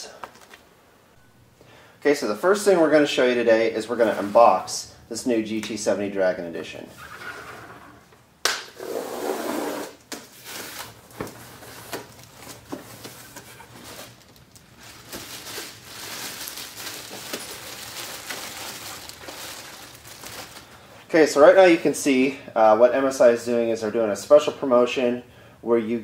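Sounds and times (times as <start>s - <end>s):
packing tape tearing: 9.6s - 20.7s
cardboard flaps and packing rustling: 10.2s - 20.8s.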